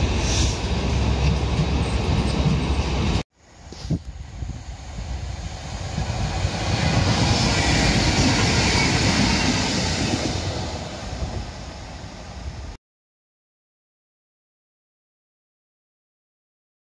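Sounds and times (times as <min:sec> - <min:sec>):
diesel locomotive passing: 0:00.0 - 0:03.2, 0:04.0 - 0:12.8.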